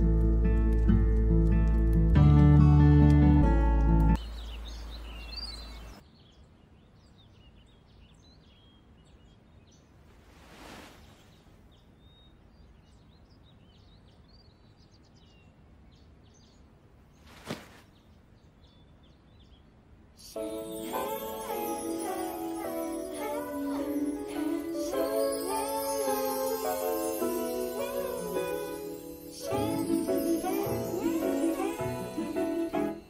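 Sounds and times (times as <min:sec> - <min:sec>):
music: 0:00.0 - 0:04.2, 0:20.3 - 0:33.0
small birds chirping: 0:04.1 - 0:33.0.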